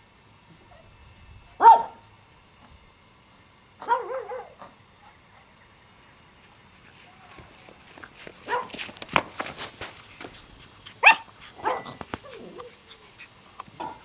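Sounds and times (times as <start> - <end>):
puppy yapping: 3.8 - 4.7, 8.5 - 8.8, 11.0 - 14.0.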